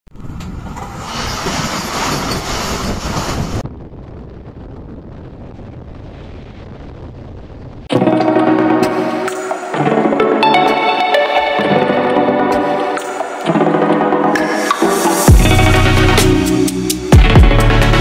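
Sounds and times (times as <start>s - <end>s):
train rumbling along track: 0.1s - 5.5s
wind buffeting microphone: 0.1s - 7.9s
music: 7.9s - 18.0s.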